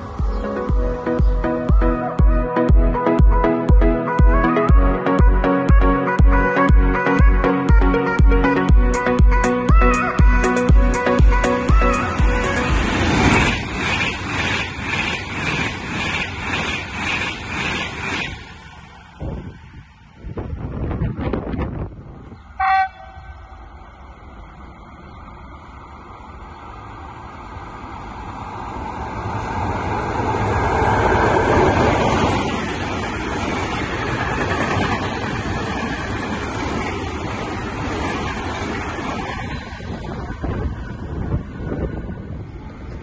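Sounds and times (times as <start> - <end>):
freight train rumbling past: 0.0 - 4.8, 8.0 - 43.0
locomotive horn toot: 22.6 - 23.5.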